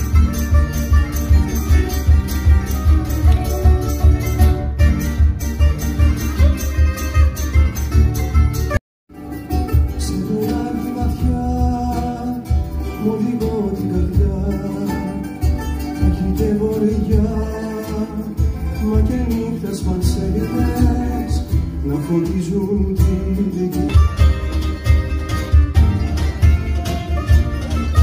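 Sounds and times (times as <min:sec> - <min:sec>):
cajon beat: 0:00.0 - 0:28.0
guitars and lutes strummed and plucked: 0:00.0 - 0:28.0
man singing: 0:09.8 - 0:24.5.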